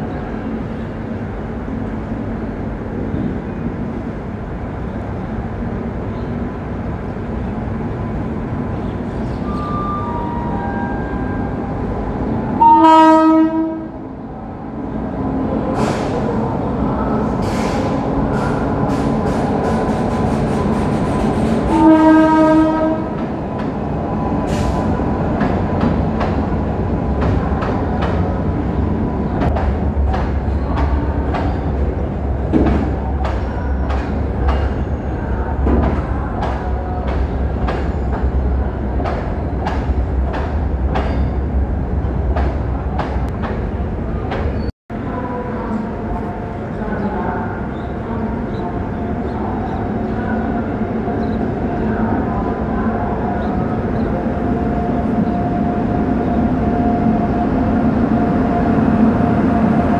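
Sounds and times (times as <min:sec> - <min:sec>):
diesel locomotive engine rumble: 0:00.0 - 0:59.9
train horn blasts: 0:12.6 - 0:14.0, 0:21.7 - 0:23.2.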